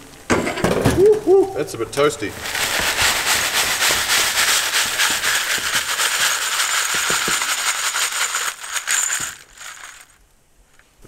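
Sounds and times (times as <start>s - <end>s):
pellets rattling in a shaken sieve: 2.3s - 10.2s.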